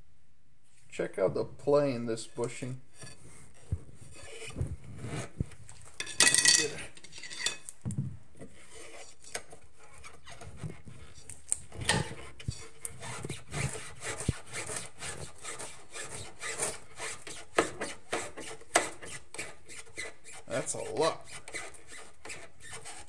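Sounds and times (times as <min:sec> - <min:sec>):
metal scraping and knocking: 0:03.0 - 0:07.7, 0:08.4 - 0:14.8.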